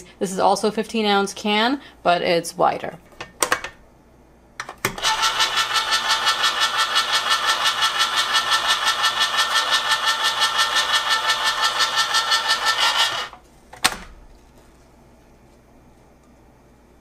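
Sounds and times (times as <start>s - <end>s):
electric can opener motor: 4.9s - 13.4s.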